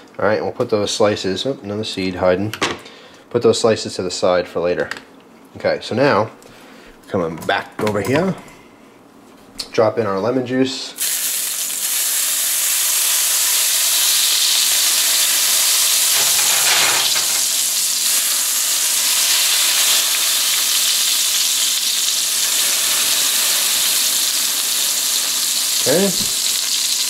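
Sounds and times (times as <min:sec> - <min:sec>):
juice sizzling in hot pan: 0:11.0 - 0:27.0.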